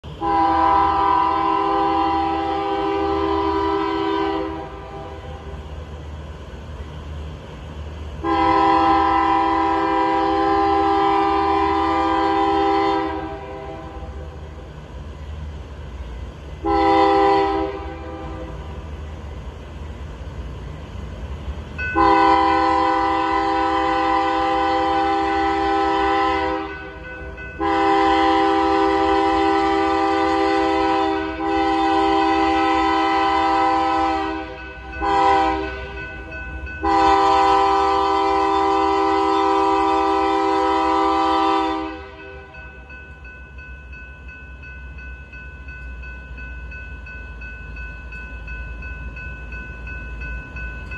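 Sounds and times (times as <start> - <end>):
low diesel rumble of train: 0.0 - 50.9
locomotive horn blasts: 0.2 - 5.5, 8.2 - 14.3, 16.6 - 18.8, 22.0 - 27.0, 27.6 - 36.0, 36.8 - 42.6.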